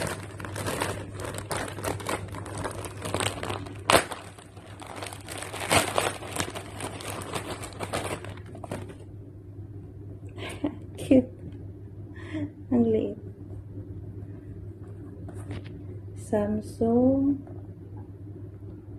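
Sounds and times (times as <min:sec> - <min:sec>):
plastic bag crinkling: 0:00.0 - 0:09.1
sharp plastic crackles: 0:00.0 - 0:09.1.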